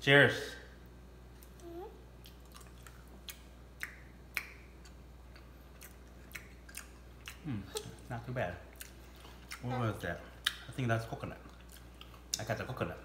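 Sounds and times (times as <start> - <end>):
people chewing with wet smacks: 2.2 - 12.6.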